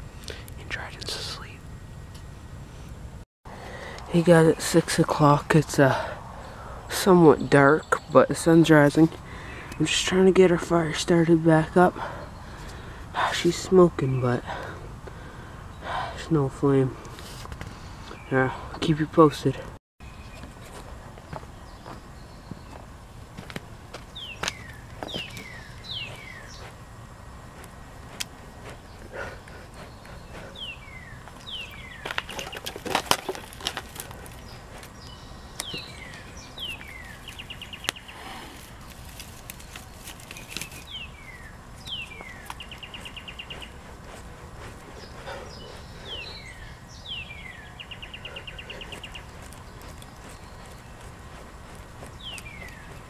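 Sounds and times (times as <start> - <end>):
twigs snapping and rustling: 23.4 - 25.9, 31.2 - 41.1
songbird whistling: 24.2 - 26.7, 29.8 - 32.7, 40.7 - 43.8, 45.0 - 50.8.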